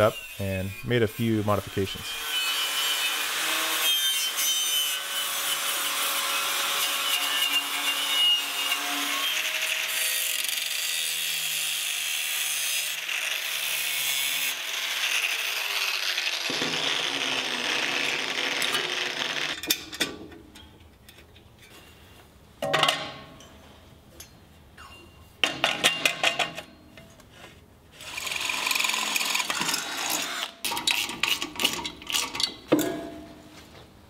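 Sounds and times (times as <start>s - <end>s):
angle grinder grinding steel: 0.0s - 19.6s, 28.0s - 32.2s.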